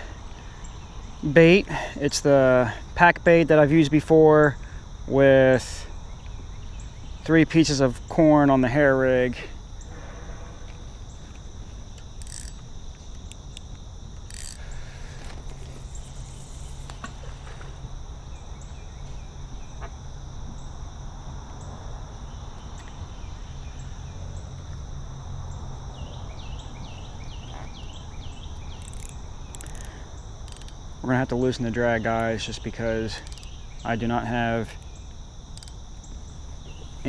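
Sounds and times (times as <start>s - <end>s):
crickets and night insects: 0.0s - 37.0s
fishing reel clicks: 12.0s - 14.8s, 28.8s - 30.8s, 33.1s - 33.5s, 35.5s - 35.8s.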